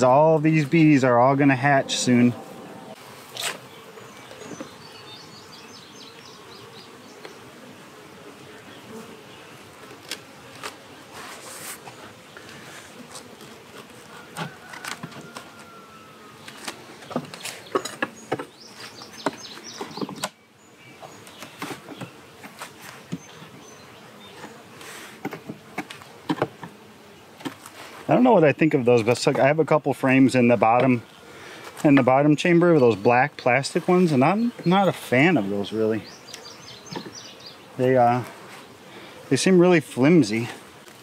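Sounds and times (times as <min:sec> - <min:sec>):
bees buzzing: 0:00.0 - 0:41.0.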